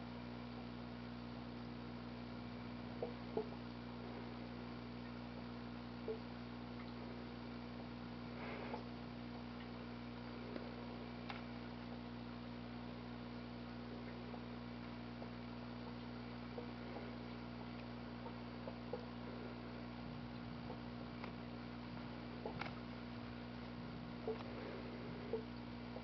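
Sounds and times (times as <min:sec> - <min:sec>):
low electrical hum: 0:00.0 - 0:26.0
faint ticks and taps: 0:22.4 - 0:22.8, 0:23.6 - 0:24.6.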